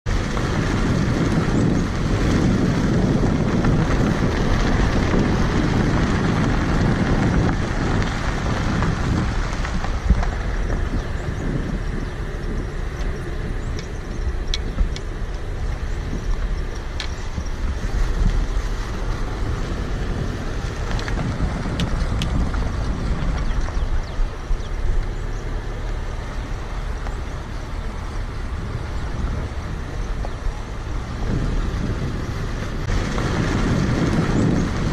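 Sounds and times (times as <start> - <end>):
engine and tyres rumbling: 0.0 - 34.9
wind buffeting microphone: 0.0 - 34.9.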